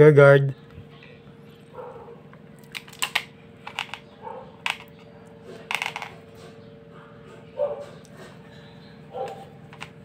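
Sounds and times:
toy revolver metal parts clicking: 2.7 - 4.0.

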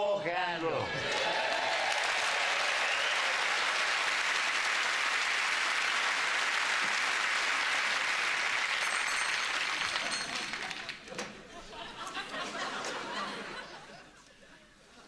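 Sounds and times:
audience applauding: 0.8 - 11.1.

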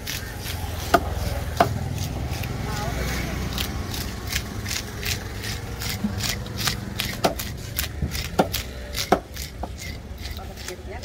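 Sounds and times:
knife scraping fish scales: 0.0 - 11.0.

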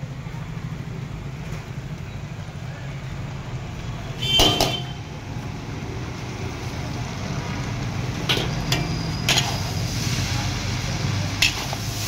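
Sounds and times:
metal utensils clinking against wok: 8.2 - 9.8, 11.3 - 12.0.

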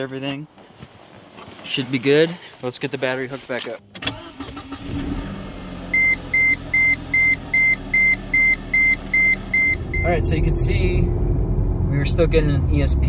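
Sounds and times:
car engine idling: 5.4 - 12.9
rapid warning chime beeps: 6.0 - 10.2.

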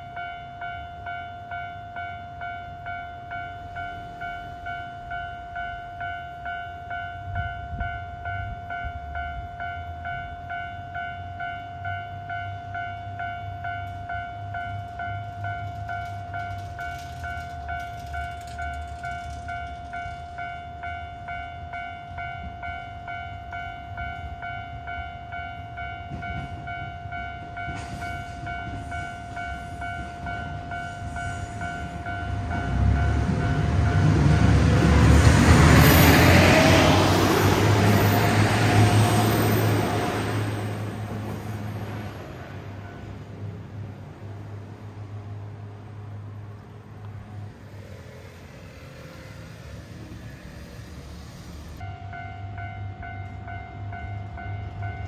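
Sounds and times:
level crossing alarm bell: 0.0 - 34.6
diesel train rumbling: 0.0 - 55.0.

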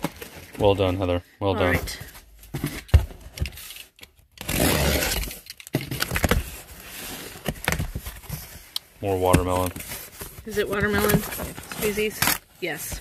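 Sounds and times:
cardboard scraping and rubbing: 6.0 - 13.0.

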